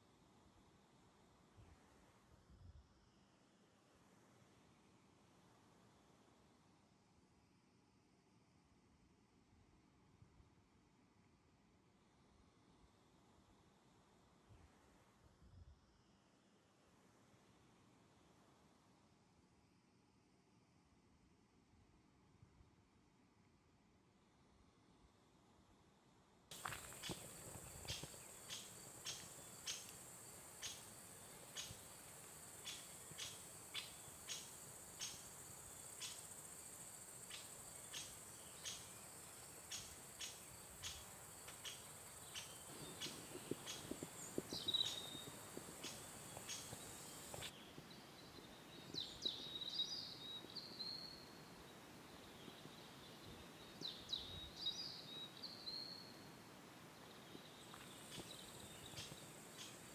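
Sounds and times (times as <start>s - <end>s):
high insect hiss: 26.5s - 59.9s
songbirds singing trills: 26.6s - 30.0s, 30.6s - 32.0s, 32.6s - 36.3s, 37.3s - 51.4s, 52.2s - 56.3s, 57.0s - 59.9s.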